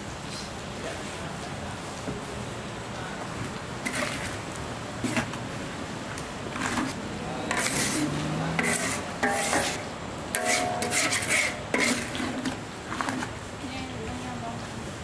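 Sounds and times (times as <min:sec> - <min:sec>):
metal spatula scraping a wok: 0:03.8 - 0:04.4, 0:05.0 - 0:05.4, 0:06.5 - 0:13.4.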